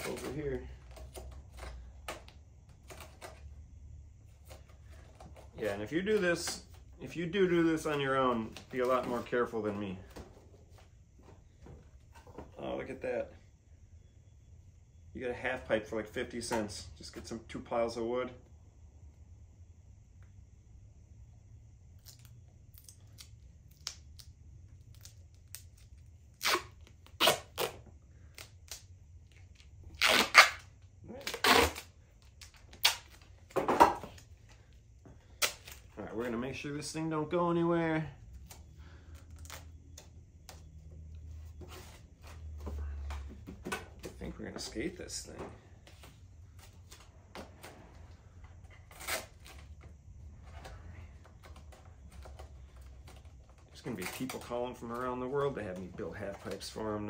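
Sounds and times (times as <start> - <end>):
tape crackle: 21.9 - 36.4, 38.3 - 42.0, 48.6 - 49.9, 50.5 - 56.8
duct tape ripping off roll: 24.9 - 27.8, 28.4 - 33.3, 48.9 - 49.6.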